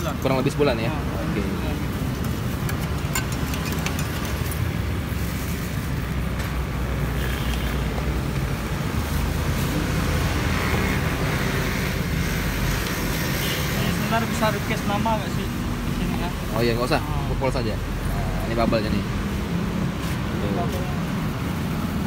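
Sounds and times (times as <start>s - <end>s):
road traffic rumble: 0.0s - 22.0s
spoon clinking in metal pitcher: 2.6s - 4.5s.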